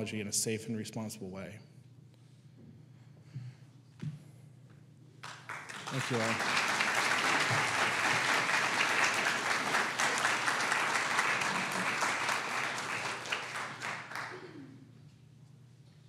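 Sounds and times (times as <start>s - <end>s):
audience applauding: 5.2s - 14.6s.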